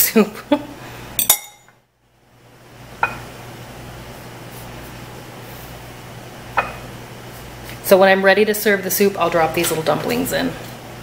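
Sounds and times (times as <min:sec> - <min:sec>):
kitchen background hum: 0:00.0 - 0:11.0.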